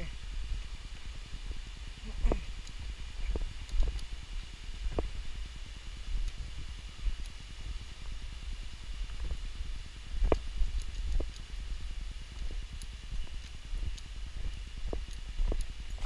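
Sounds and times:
wind rumble on microphone: 0.0s - 16.0s
footsteps on a path: 2.0s - 5.4s, 10.2s - 16.0s.

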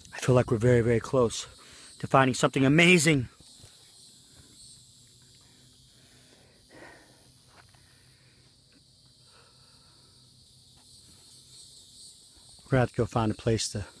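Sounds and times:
high insect drone: 0.0s - 14.0s.

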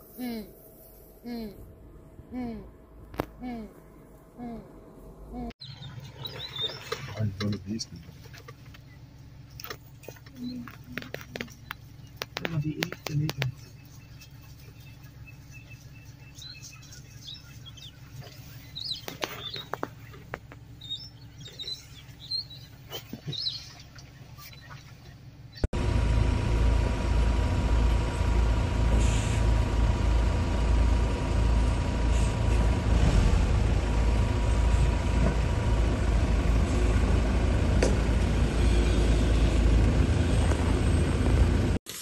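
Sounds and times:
vehicle engine rumbling: 0.0s - 41.8s
birds chirping: 5.6s - 25.7s.

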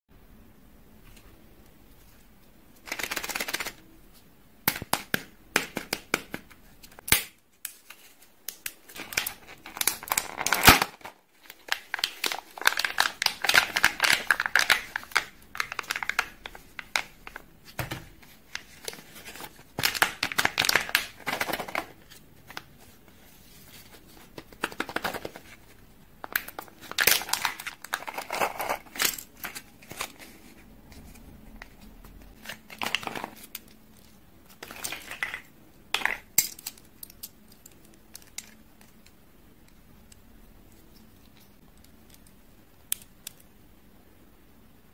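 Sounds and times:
wrappers crinkling and tearing: 8.9s - 17.1s.

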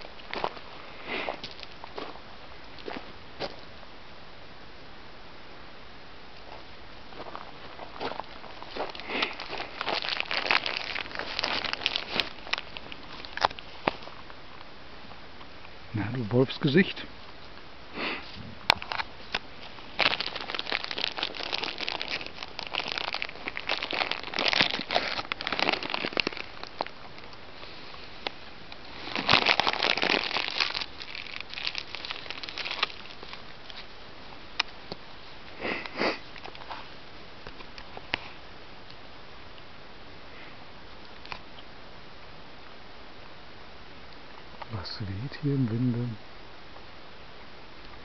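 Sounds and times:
dog chewing and crunching: 8.1s - 14.0s, 20.0s - 27.0s, 29.0s - 33.4s.

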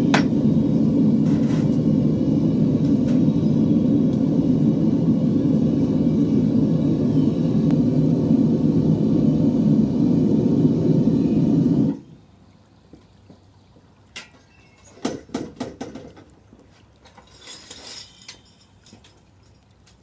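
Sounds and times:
gas burner roaring: 0.0s - 12.2s.

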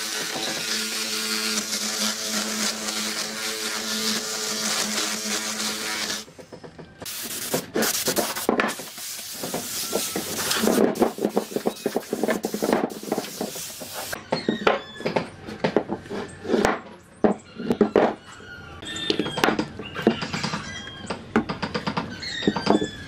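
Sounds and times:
power tool motor: 0.0s - 6.3s
scraping and rubbing wood: 0.0s - 6.4s, 7.0s - 14.2s.

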